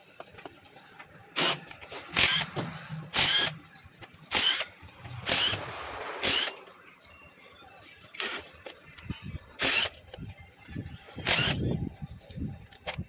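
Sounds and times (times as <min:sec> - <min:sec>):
cordless drill whining: 0:02.2 - 0:02.5, 0:05.2 - 0:06.5, 0:09.6 - 0:10.0, 0:11.2 - 0:11.6.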